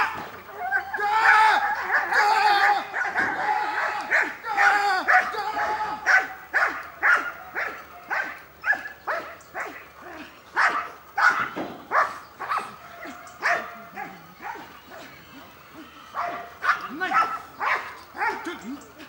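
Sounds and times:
dog barking sharply: 6.1s - 9.8s.

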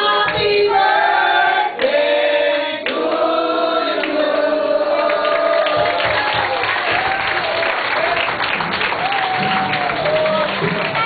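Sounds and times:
group of people singing: 0.0s - 6.5s.

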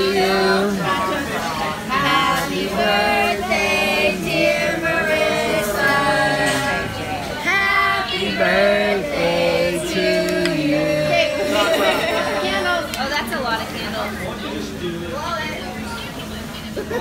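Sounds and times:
group singing without accompaniment: 0.0s - 12.8s.

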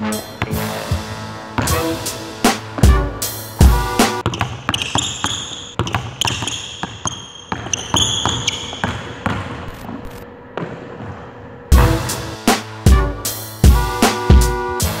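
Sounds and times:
sneakers squeaking: 0.1s - 12.2s
basketball bouncing on wooden floor: 0.4s - 0.9s, 1.6s - 2.0s, 2.7s - 12.1s.

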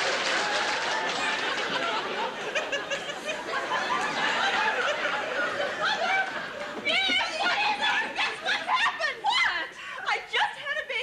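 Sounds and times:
audience clapping: 0.0s - 8.4s
audience laughing: 0.4s - 8.8s.

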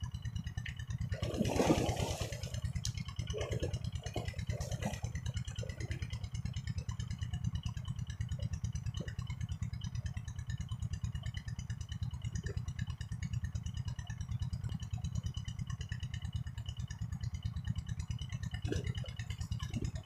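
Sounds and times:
small engine chugging: 0.0s - 20.0s
water splash: 1.1s - 2.6s.

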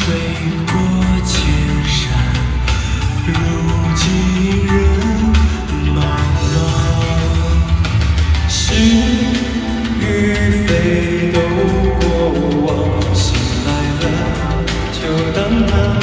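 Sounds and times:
amplified instrumental backing: 0.0s - 16.0s
man singing into microphone: 0.0s - 16.0s.

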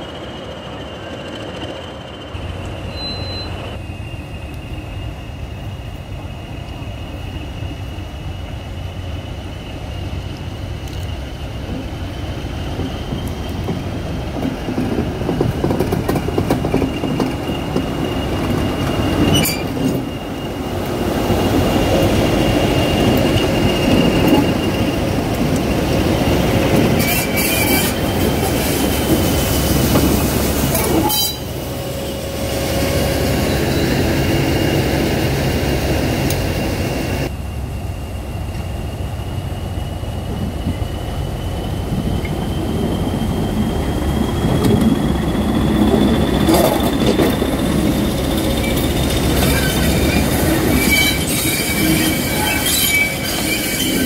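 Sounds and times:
diesel locomotives passing: 0.0s - 54.0s
high engine whistle: 2.8s - 5.9s, 30.7s - 35.1s, 42.2s - 54.0s.

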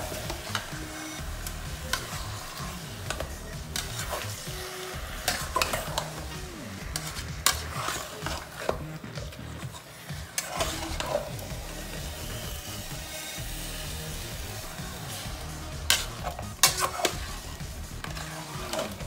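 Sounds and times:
chicken sizzling in a pot: 0.0s - 19.0s
metal spoon scraping a pot: 0.1s - 8.9s, 9.6s - 11.4s, 15.1s - 19.0s.

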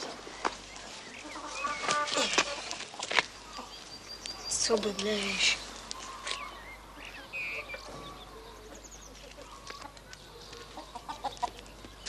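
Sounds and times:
hen clucking: 1.0s - 3.8s, 6.0s - 11.8s.

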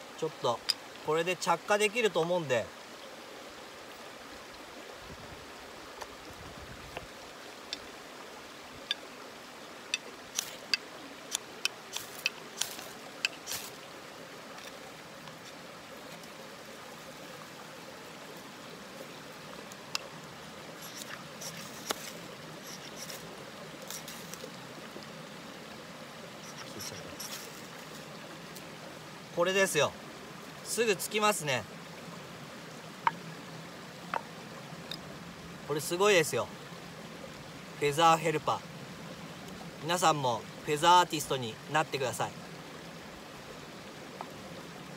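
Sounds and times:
steady background hiss: 0.0s - 44.9s
ferro rod scrapes: 20.8s - 23.2s, 26.4s - 28.0s.

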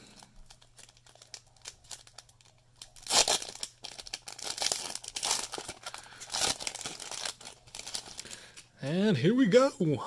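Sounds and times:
wrapper crinkling: 0.0s - 8.7s
foil wrapper ripping: 0.1s - 8.6s.

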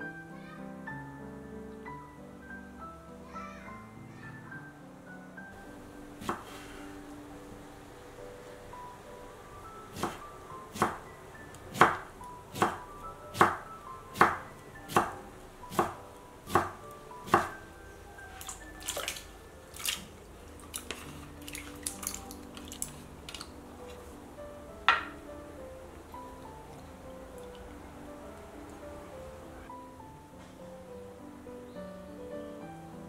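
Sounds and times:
soft background music: 0.0s - 33.0s
knife chopping on wooden board: 6.2s - 6.6s, 9.9s - 11.0s, 11.7s - 12.8s, 13.4s - 13.6s, 14.2s - 17.6s.

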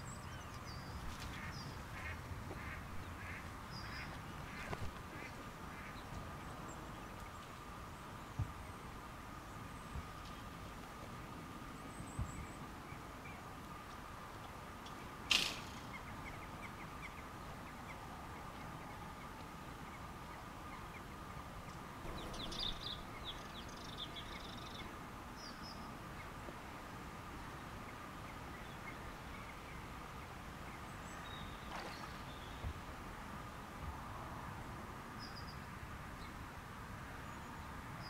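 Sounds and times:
birds calling: 0.0s - 8.4s, 15.2s - 26.4s
sharp click: 15.3s - 15.8s.

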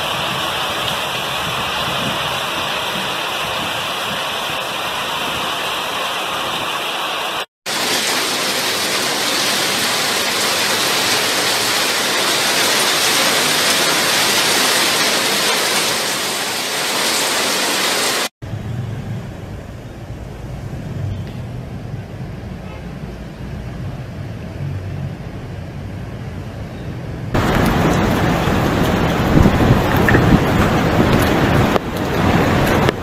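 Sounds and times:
heavy rain pouring: 0.0s - 18.3s, 27.3s - 33.0s.

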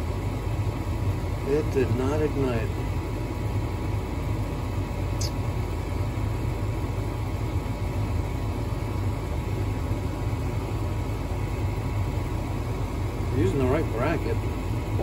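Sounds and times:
furnace motor humming: 0.0s - 15.0s.

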